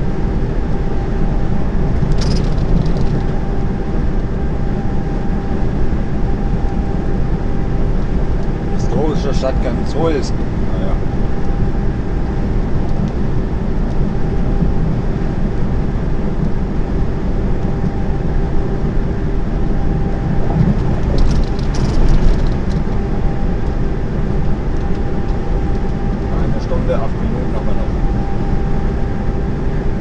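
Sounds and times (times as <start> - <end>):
faint steady whine: 0.0 - 30.0
lorry engine drone: 0.0 - 30.0
road noise: 0.0 - 30.0
light clicking or rattling: 2.0 - 3.4, 20.5 - 23.0.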